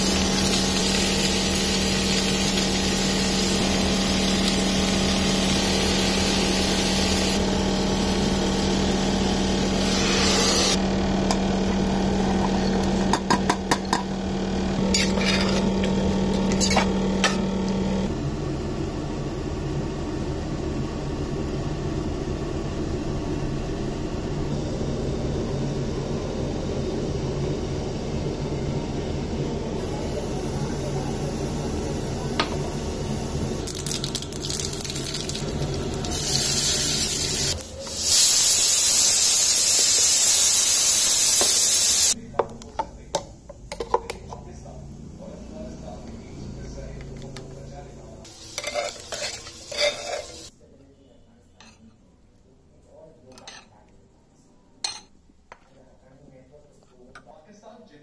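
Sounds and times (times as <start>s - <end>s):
rushing hiss: 36.1s - 42.2s.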